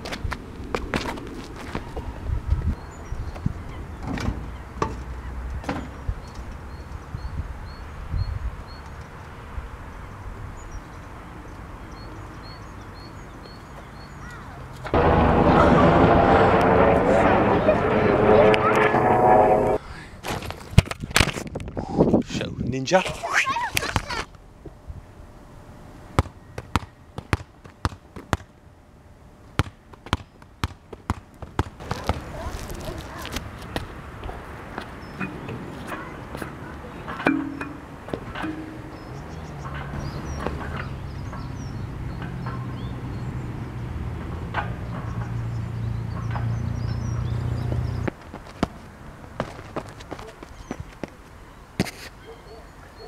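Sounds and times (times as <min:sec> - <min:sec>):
small birds chirping: 0:02.6 - 0:14.8, 0:38.8 - 0:43.6
helicopter drone: 0:15.0 - 0:19.8.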